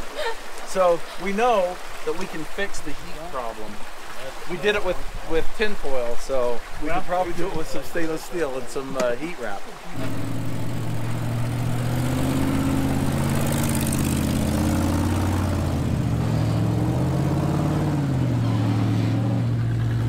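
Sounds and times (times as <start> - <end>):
truck engine running under load: 9.9 - 17.1.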